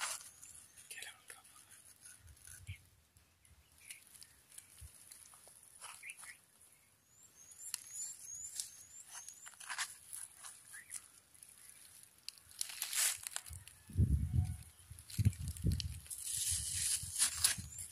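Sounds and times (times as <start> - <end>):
bird chirping: 0.0 - 4.9, 5.7 - 12.0.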